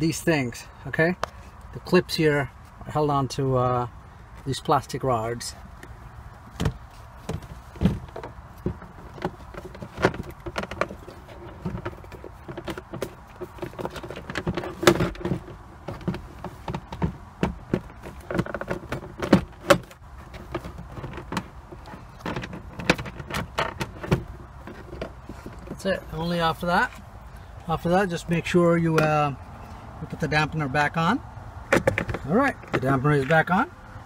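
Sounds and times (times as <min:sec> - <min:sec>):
plastic glove box clicking and knocking: 0:06.6 - 0:25.8, 0:31.7 - 0:32.9.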